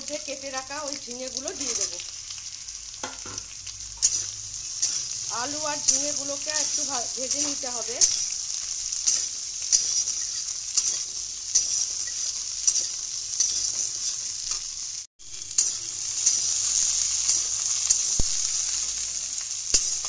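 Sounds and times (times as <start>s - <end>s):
vegetables sizzling in oil: 0.0s - 20.0s
metal spatula scraping a pan: 4.0s - 14.7s.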